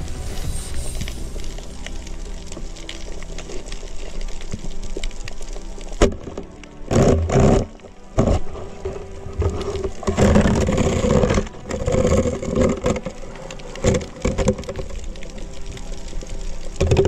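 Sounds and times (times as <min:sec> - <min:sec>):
underwater rushing and knocking: 0:00.0 - 0:17.0.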